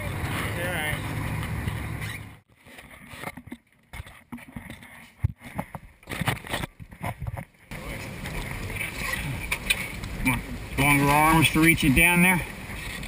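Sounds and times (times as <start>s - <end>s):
boat and wind rumble: 0.0s - 2.5s, 5.6s - 13.0s.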